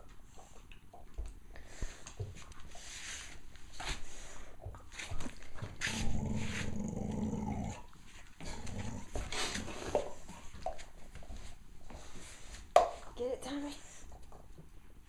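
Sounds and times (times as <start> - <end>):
dog growling: 5.6 - 10.0.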